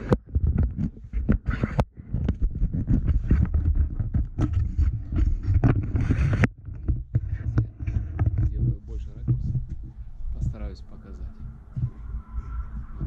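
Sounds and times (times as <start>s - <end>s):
camera handling knocks and rustles: 0.0s - 10.0s
wind rumbling on microphone: 0.0s - 13.0s.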